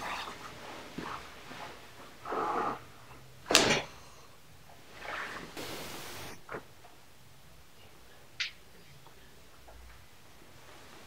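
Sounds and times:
soft handling noises: 0:07.8 - 0:11.0.

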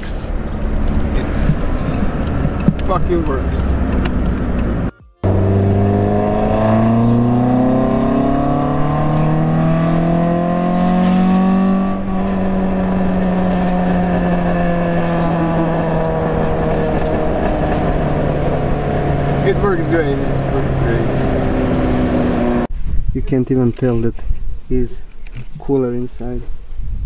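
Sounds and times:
car engine revving inside cabin: 0:00.0 - 0:22.7.

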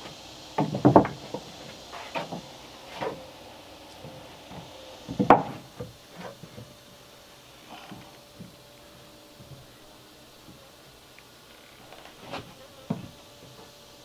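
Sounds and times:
wooden boards knocking: 0:00.6 - 0:03.3, 0:04.0 - 0:06.7, 0:12.2 - 0:13.7.

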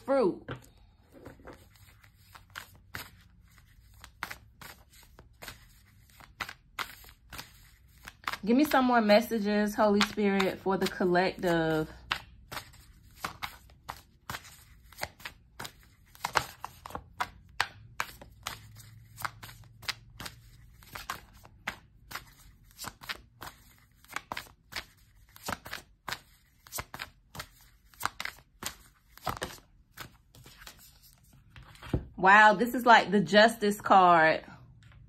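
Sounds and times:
cards being shuffled: 0:00.5 - 0:32.1.

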